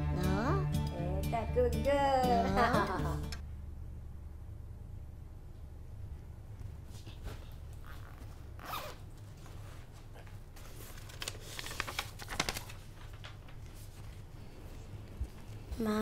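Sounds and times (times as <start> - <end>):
backpack zipper opening: 7.8 - 9.1.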